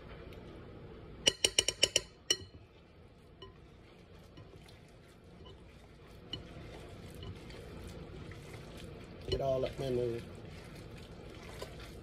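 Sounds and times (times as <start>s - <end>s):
fork clinking glass bowl: 1.3s - 2.6s.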